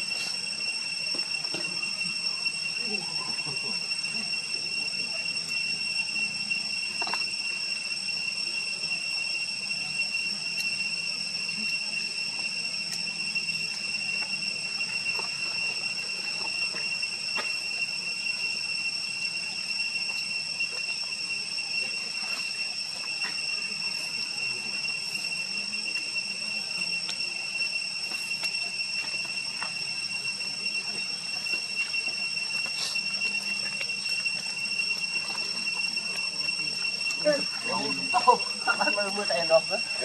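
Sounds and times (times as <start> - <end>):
insects droning: 0.0 - 40.0.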